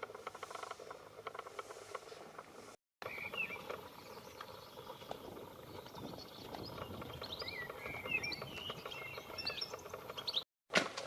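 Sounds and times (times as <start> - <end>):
small birds chirping: 3.0 - 10.5.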